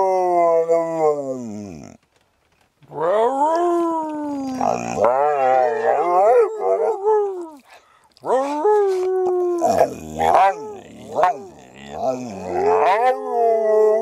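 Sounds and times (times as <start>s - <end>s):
person howling: 2.9s - 7.6s, 8.2s - 14.0s
dog howling: 2.9s - 14.0s.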